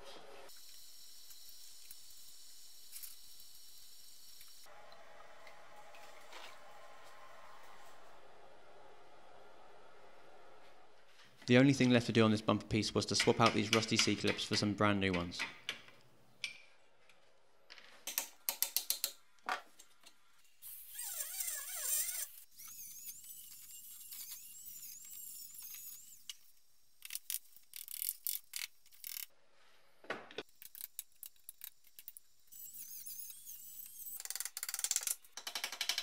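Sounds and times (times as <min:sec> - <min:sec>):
rotary tool whining: 0:20.7 - 0:29.3.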